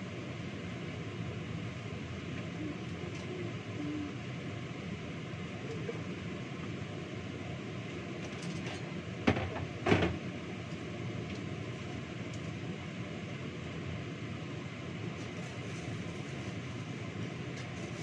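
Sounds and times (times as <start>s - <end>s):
range hood fan rumbling: 0.0s - 18.0s.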